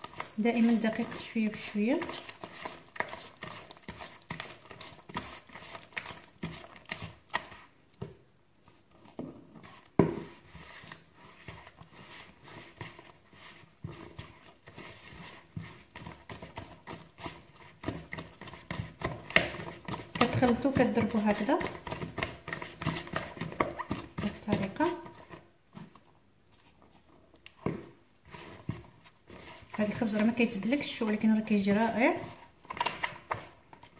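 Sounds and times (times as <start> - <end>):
hand slapping wet dough: 9.8 - 25.1.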